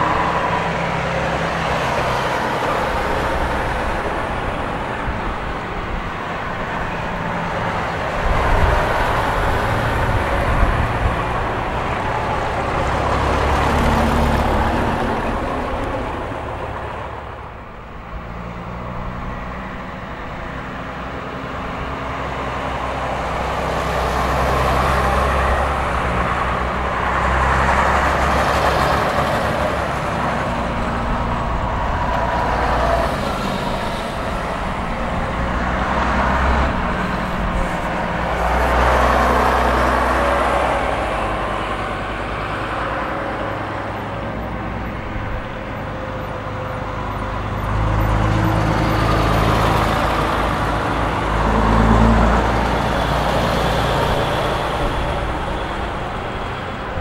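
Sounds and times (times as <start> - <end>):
diesel buses passing: 0.0 - 57.0.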